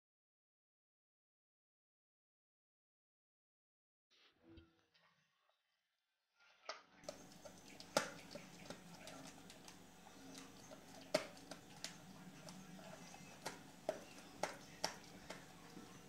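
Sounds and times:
faint steady hum: 7.0s - 16.0s.

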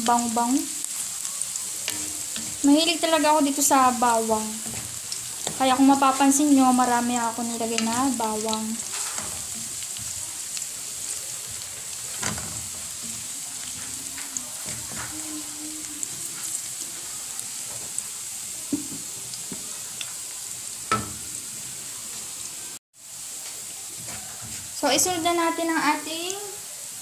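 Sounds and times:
garlic sizzling in oil: 0.0s - 27.0s
wooden spatula scraping a pan: 1.6s - 18.0s, 23.9s - 25.2s.

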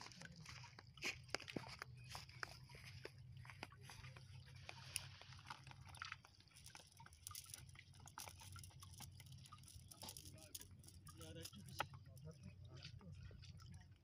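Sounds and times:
fishing net rustling: 0.0s - 11.9s.

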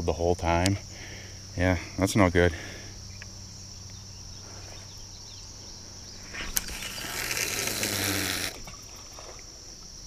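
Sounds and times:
insect trill: 0.0s - 10.0s
fishing line hissing off reel: 6.1s - 9.4s
fishing reel click: 6.5s - 8.6s.

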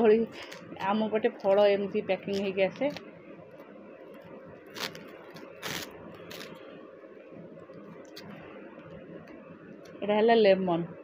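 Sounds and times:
packaging rustling and crackling: 4.7s - 6.6s.

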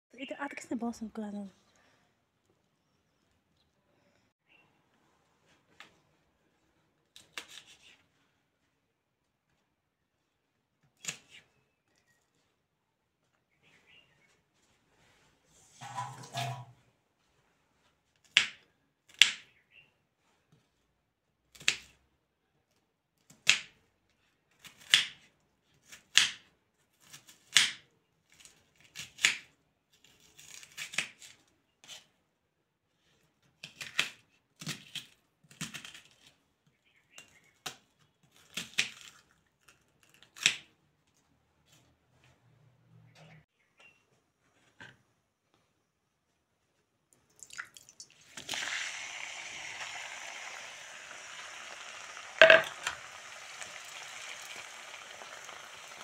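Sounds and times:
onion layers pulled apart: 48.2s - 56.0s.

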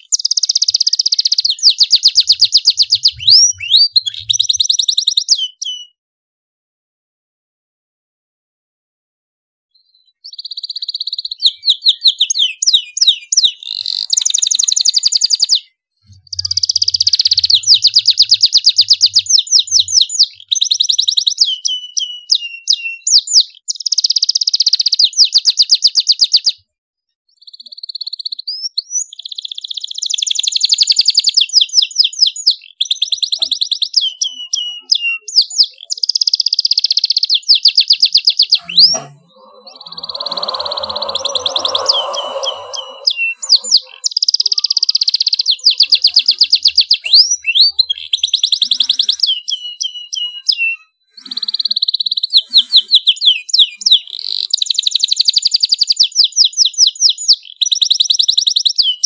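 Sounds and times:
canary singing trills: 0.0s - 6.0s, 9.8s - 26.5s, 27.4s - 59.0s.

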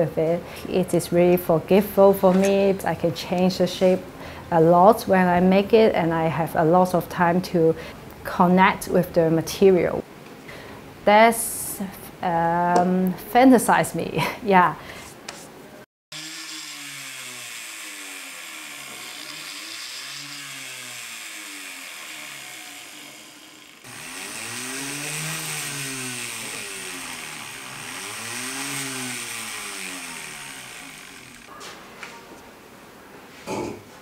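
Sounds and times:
rotary tool whining: 16.1s - 31.5s.

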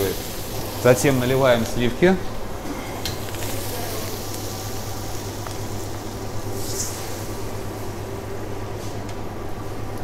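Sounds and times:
even hiss: 0.0s - 2.2s
low electrical hum: 0.0s - 10.0s.

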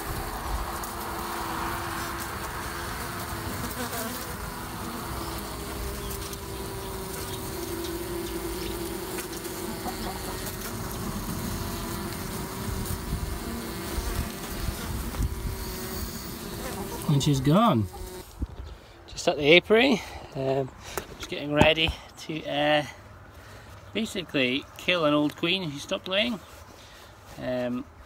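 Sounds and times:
bees buzzing: 0.0s - 18.5s.

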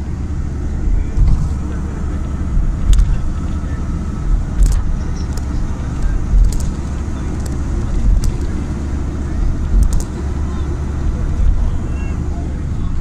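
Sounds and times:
vehicle road and engine rumble: 0.0s - 13.0s.

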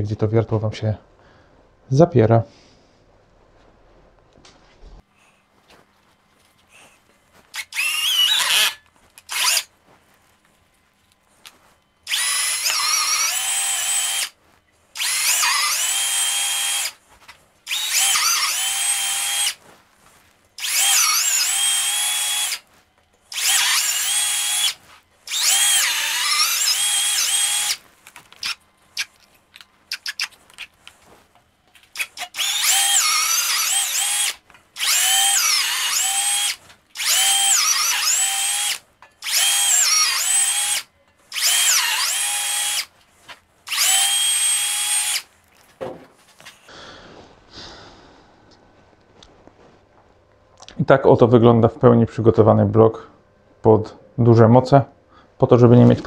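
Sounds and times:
cordless drill whining: 7.5s - 9.7s, 12.0s - 17.0s, 17.6s - 19.6s, 20.6s - 22.7s, 23.3s - 29.2s, 31.8s - 42.9s, 43.6s - 45.3s.

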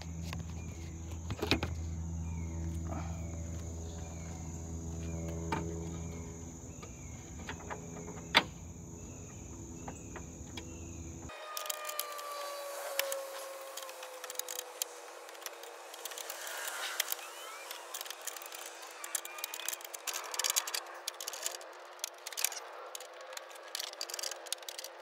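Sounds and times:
steady low hum: 0.0s - 11.3s
insects chirping: 0.0s - 24.9s.

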